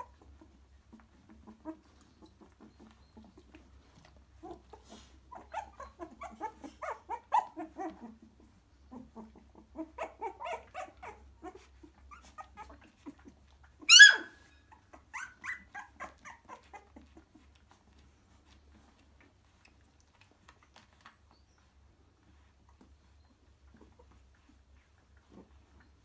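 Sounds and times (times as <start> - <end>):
high-pitched puppy yelp: 0.0 - 18.0
puppies squeaking and whimpering: 0.0 - 26.0.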